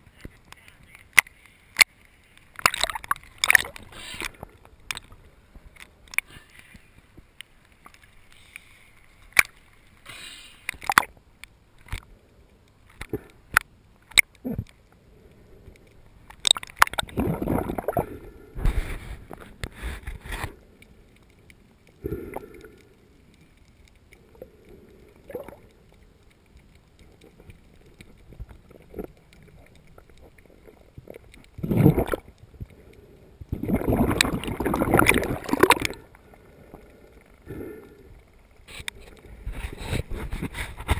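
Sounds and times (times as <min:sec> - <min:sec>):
water sloshing and gurgling: 0:01.1 - 0:40.9
churning water: 0:16.4 - 0:18.0, 0:30.6 - 0:32.3, 0:33.5 - 0:36.3.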